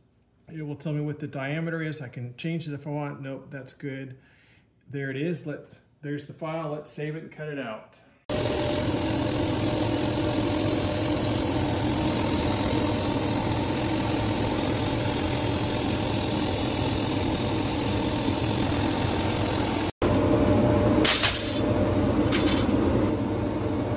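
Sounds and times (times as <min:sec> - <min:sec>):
laser cutter hiss: 0:08.3 - 0:20.0
low machine hum: 0:08.3 - 0:23.9.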